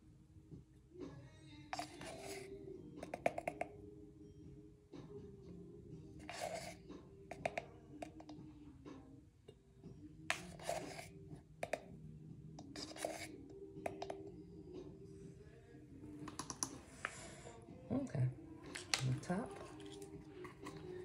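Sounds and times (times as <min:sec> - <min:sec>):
plastic spoon scraping a can: 0:01.7 - 0:03.7, 0:06.2 - 0:08.4, 0:10.3 - 0:11.9, 0:12.6 - 0:14.2, 0:18.7 - 0:21.0.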